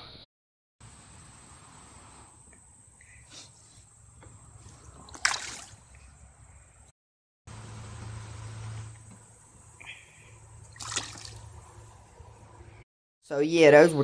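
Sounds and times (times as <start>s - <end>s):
faint outdoor hiss: 0.8s - 6.9s, 7.5s - 14.0s
fish splashing into water: 4.9s - 5.9s, 10.6s - 11.6s.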